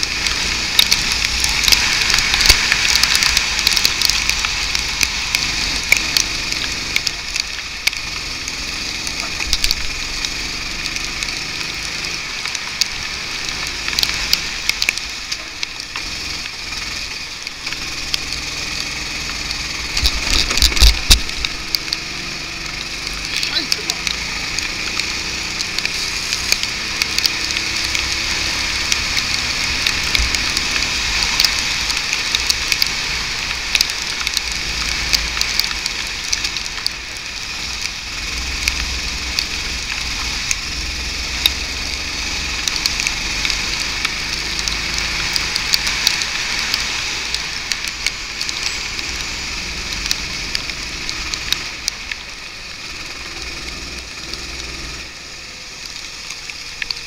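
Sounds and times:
faint kart engine: 0.0 - 57.0
spray and rain hitting camera: 0.0 - 57.0
wind rumble: 14.2 - 22.1.

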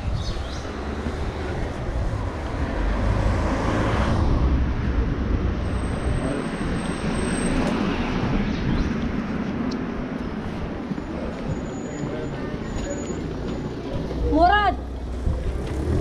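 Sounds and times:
street traffic: 0.0 - 16.0.

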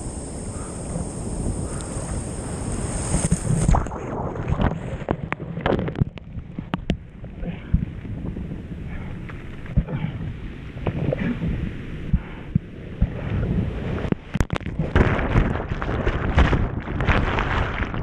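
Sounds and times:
jet ski engine whine: 0.0 - 3.4
wave breaking: 0.0 - 6.0, 13.0 - 18.0
muffled rushing water: 0.0 - 18.0
wind on microphone: 0.0 - 18.0
water splashes and knocks: 14.3 - 18.0.

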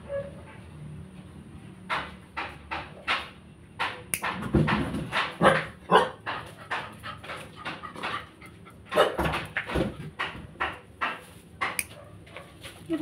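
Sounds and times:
dog barking: 5.4 - 6.2, 8.9 - 9.2, 11.9 - 12.6.

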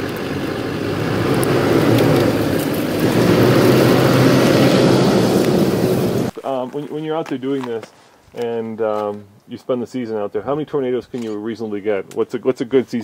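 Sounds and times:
pickup truck engine running: 0.0 - 6.3.

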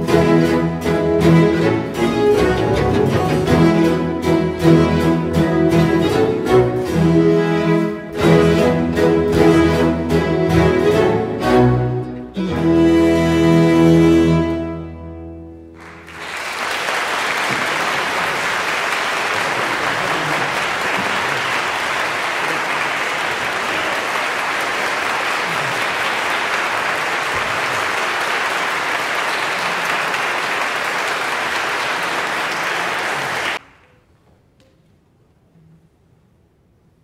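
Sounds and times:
string orchestra chord: 0.0 - 15.8
audience applauding: 15.8 - 33.8.

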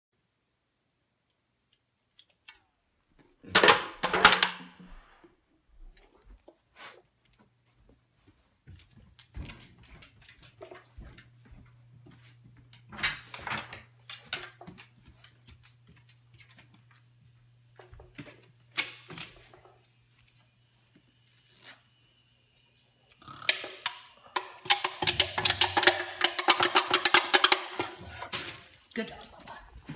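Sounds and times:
footsteps on stairs: 7.3 - 12.9
dog's claws clicking on floor: 24.4 - 29.9.

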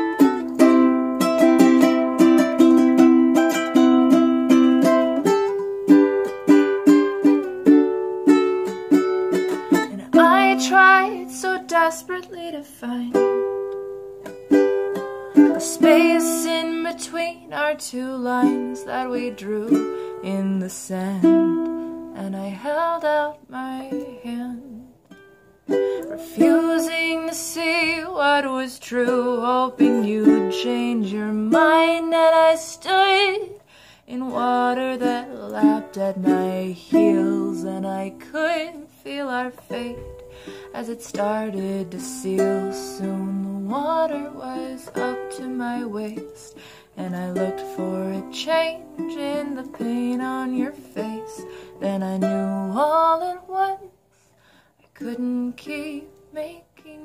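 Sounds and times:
ukulele strumming: 0.0 - 53.9
woman singing: 9.3 - 13.7, 14.9 - 25.0, 25.9 - 54.0, 54.9 - 57.0.

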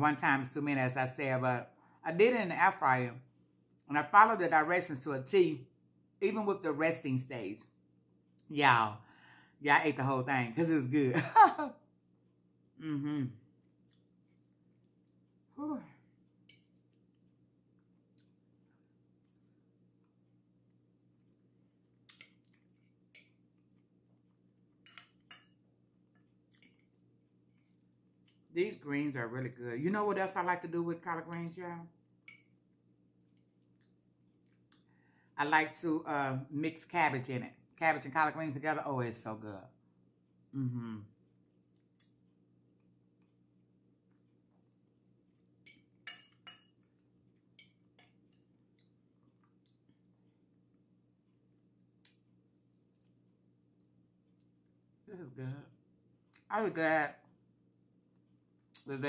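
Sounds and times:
fork clinking against plate: 45.6 - 46.8.

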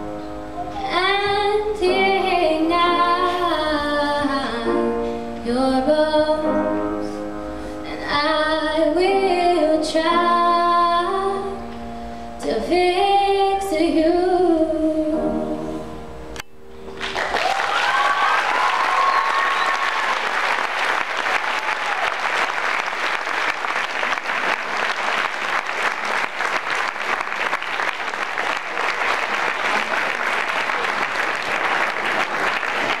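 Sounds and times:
audience applauding: 17.0 - 33.0.

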